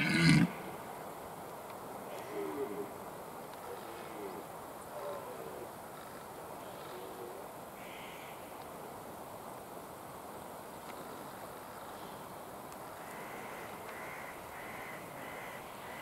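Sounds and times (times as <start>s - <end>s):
steady background hiss: 0.0s - 16.0s
deer stag grunting calls: 2.2s - 3.0s.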